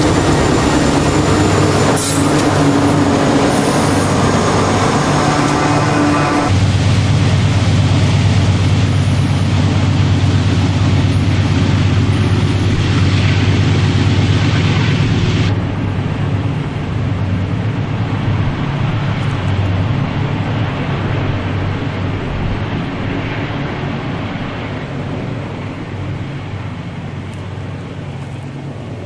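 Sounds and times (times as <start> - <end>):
diesel locomotive engine drone: 0.0 - 29.0
wheel and rail noise: 0.0 - 29.0
high hiss: 8.6 - 16.0.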